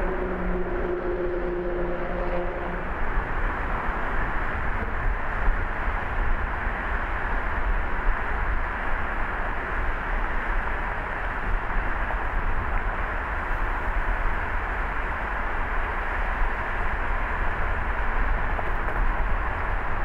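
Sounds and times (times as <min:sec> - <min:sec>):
humming tone: 0:00.0 - 0:02.9
road and tyre noise: 0:00.0 - 0:20.0.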